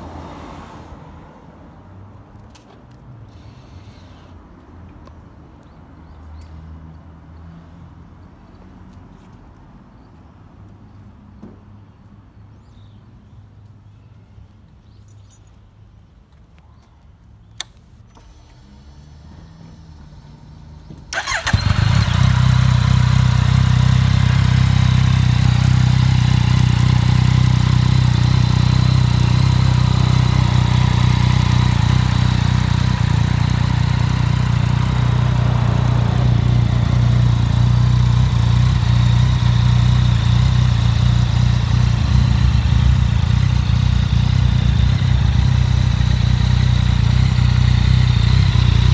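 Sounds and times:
motorcycle engine idling: 0:19.7 - 0:48.9.

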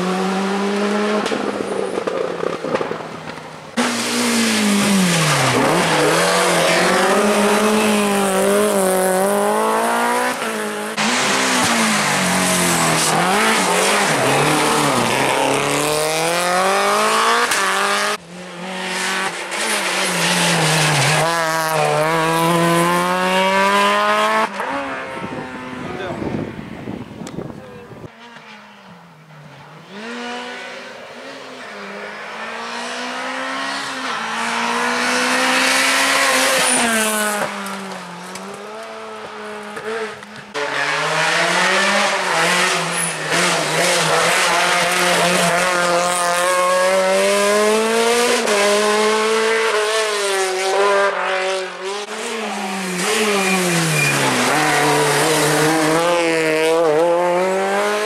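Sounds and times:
rally car engines revving: 0:00.0 - 0:58.0
rally car revving past: 0:03.8 - 0:26.5, 0:38.4 - 0:58.0.

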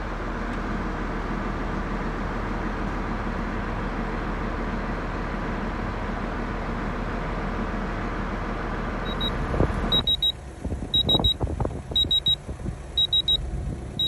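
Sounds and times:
steady rumbling: 0:07.5 - 0:14.0
electronic beeper triplets: 0:10.0 - 0:10.4, 0:11.0 - 0:11.4, 0:12.0 - 0:12.4, 0:13.0 - 0:13.4.

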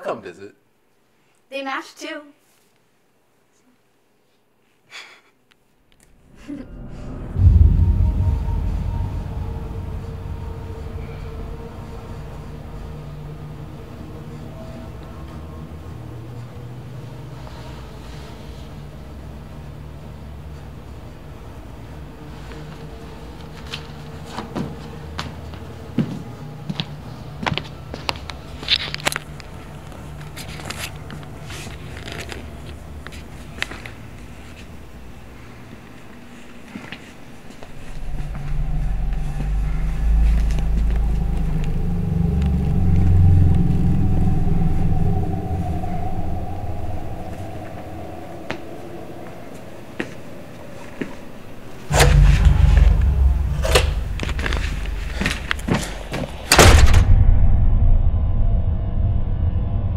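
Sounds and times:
steady low hum: 0:05.9 - 0:59.9
heavy thud with deep rumble: 0:06.6 - 0:12.7, 0:37.8 - 0:43.2, 0:51.9 - 0:59.8
knocks and bangs: 0:51.9 - 0:57.2.

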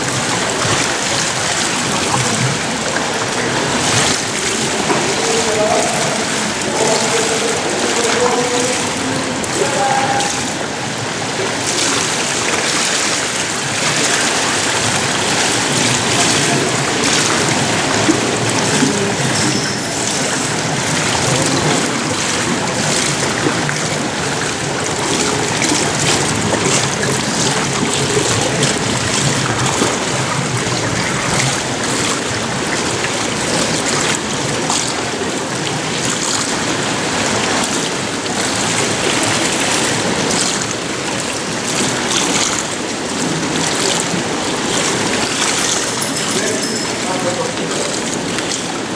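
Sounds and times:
pool water splashing and lapping: 0:00.0 - 0:48.9
faint voices: 0:02.2 - 0:32.1, 0:43.1 - 0:48.6.

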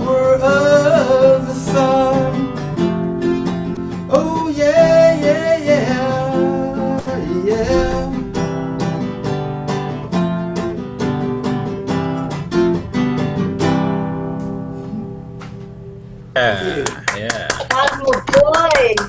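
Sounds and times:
man singing: 0:00.0 - 0:02.7, 0:03.9 - 0:08.6
acoustic guitar strumming: 0:00.0 - 0:17.1.

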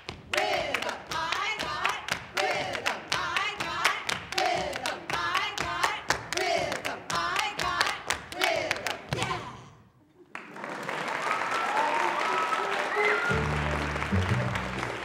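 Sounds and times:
rhythmic clapping and stomping: 0:00.0 - 0:09.6, 0:12.9 - 0:15.0.

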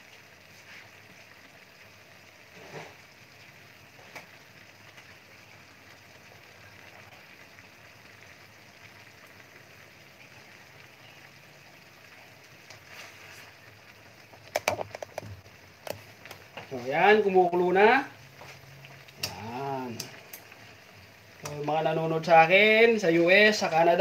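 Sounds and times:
food bubbling and sizzling: 0:00.0 - 0:24.0.

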